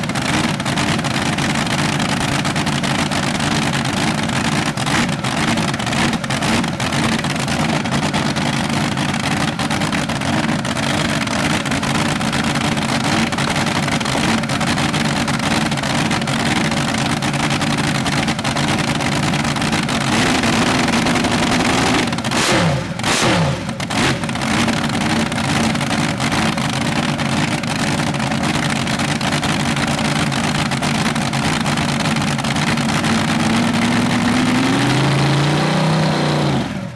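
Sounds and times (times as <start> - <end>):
v-eight engine revving: 19.4 - 26.6, 32.5 - 36.9.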